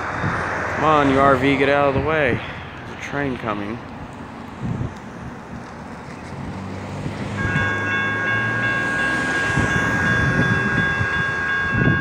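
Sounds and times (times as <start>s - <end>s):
diesel train engine rumble: 0.0s - 12.0s
level-crossing warning bell: 7.3s - 12.0s.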